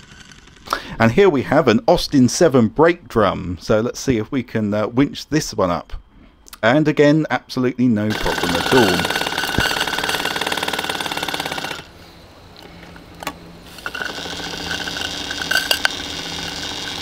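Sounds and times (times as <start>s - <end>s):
small steam engine running: 0.0s - 0.7s, 8.1s - 11.9s, 13.2s - 17.0s
sharp clicks: 12.5s - 17.0s.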